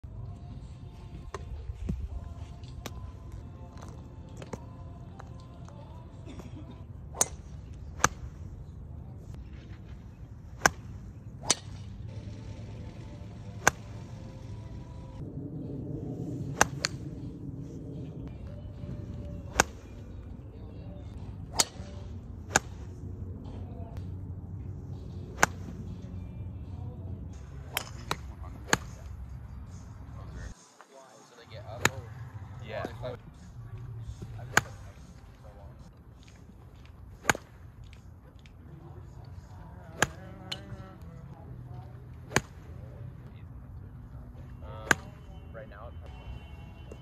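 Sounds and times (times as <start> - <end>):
low wind rumble: 0.0 - 30.6, 31.4 - 47.0
golf irons striking balls: 7.0 - 8.6, 9.3 - 14.7, 16.4 - 17.4, 18.4 - 29.8, 31.6 - 35.3, 36.2 - 43.1, 44.2 - 45.5
golf club striking ball: 13.6 - 14.0, 27.7 - 28.9.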